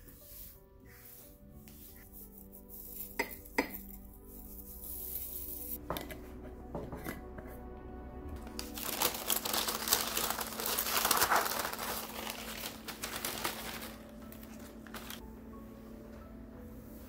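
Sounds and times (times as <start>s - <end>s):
soft background music: 0.0s - 17.0s
paper bag crinkling: 8.4s - 15.2s.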